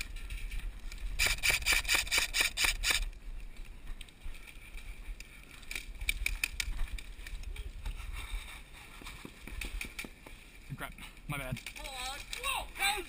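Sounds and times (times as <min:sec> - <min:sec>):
light scattered steps and clicks: 0:02.1 - 0:12.7
wind rumble on microphone: 0:02.6 - 0:10.0
running footfalls: 0:07.9 - 0:10.6.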